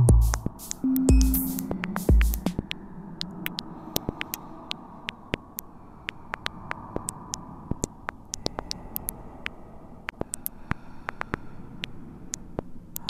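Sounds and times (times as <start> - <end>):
sharp clicks and crackles: 1.9 - 13.0.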